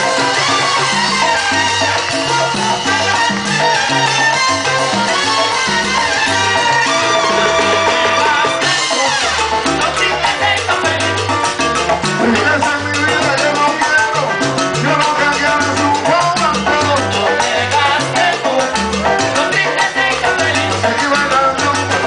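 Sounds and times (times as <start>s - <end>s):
live salsa band playing: 0.0s - 22.0s.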